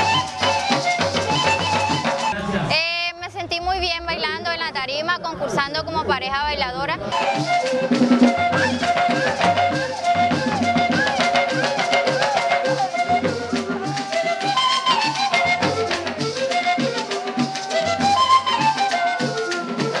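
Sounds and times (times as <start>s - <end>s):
latin dance music: 0.0s - 20.0s.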